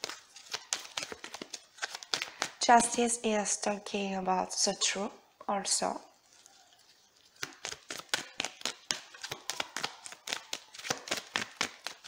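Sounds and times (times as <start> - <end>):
cards shuffling: 0.0 - 2.6, 7.3 - 12.0.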